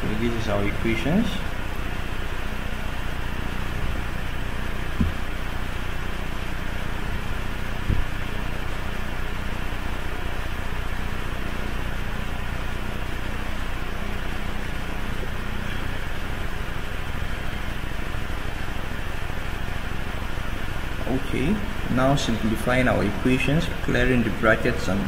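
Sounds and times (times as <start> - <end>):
background hum and hiss: 0.0 - 25.0
brief knock: 5.0 - 5.2.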